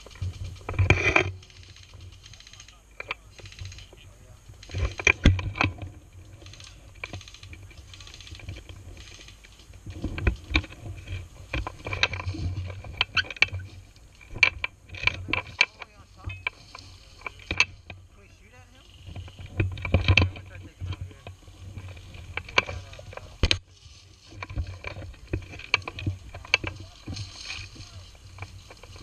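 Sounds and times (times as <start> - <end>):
brushing past fronds: 23.0 - 25.4
footsteps crunching dry leaves: 26.1 - 29.0.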